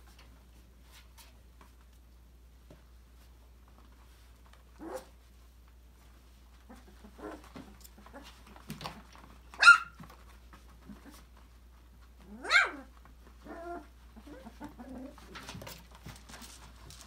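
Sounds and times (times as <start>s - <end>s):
high-pitched puppy barks: 9.5s - 10.0s, 12.3s - 12.9s
puppy whines and yips: 9.5s - 10.0s, 12.3s - 15.2s.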